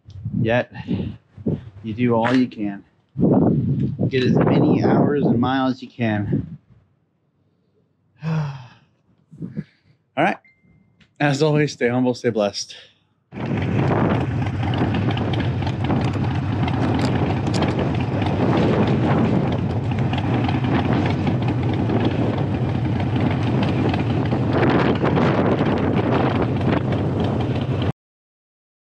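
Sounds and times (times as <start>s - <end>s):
wind buffeting microphone: 0.0s - 6.7s, 9.3s - 9.7s, 13.4s - 27.9s
motorcycle engine cruising: 13.4s - 27.9s.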